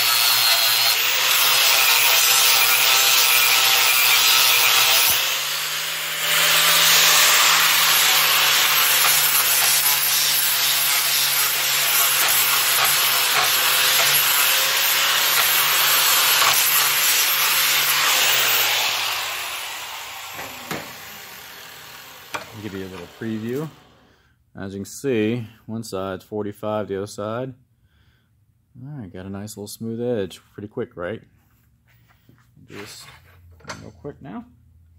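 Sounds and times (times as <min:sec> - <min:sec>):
angle grinder grinding steel: 0:00.0 - 0:24.1
grinder winding down: 0:00.0 - 0:24.1.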